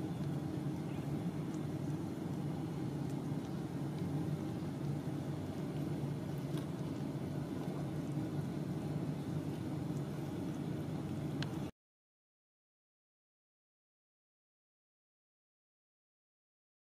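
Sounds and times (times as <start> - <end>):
steady low hum: 0.0 - 11.7.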